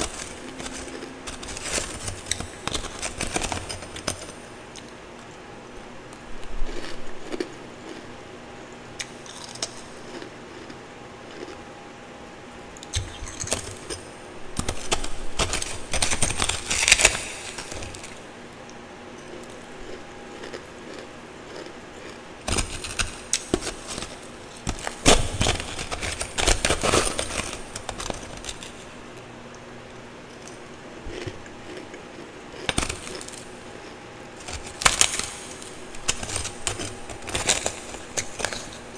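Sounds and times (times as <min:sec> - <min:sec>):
crunching ice being chewed: 0:06.1 - 0:08.1, 0:09.0 - 0:11.6, 0:19.2 - 0:28.8, 0:30.4 - 0:38.9.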